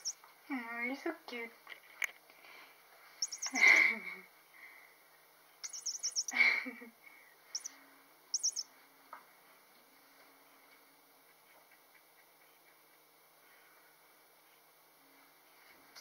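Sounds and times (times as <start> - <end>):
squeaky toy chirping: 3.2 - 3.8, 5.6 - 6.4, 8.4 - 8.6.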